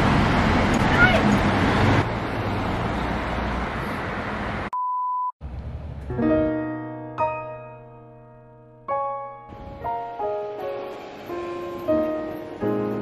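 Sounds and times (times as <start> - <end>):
street traffic noise: 0.0 - 4.8, 5.4 - 6.2, 9.5 - 13.0
soft piano music: 6.0 - 13.0.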